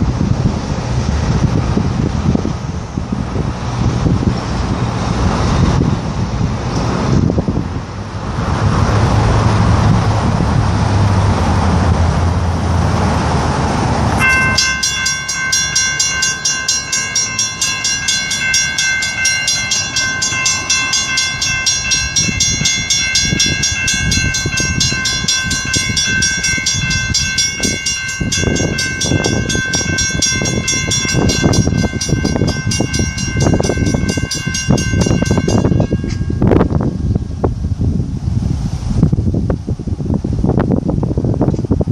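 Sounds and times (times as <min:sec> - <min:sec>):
vehicle engine running: 0:00.0 - 0:38.9
wind noise: 0:00.0 - 0:41.9
railroad crossing bell ringing: 0:14.1 - 0:37.5.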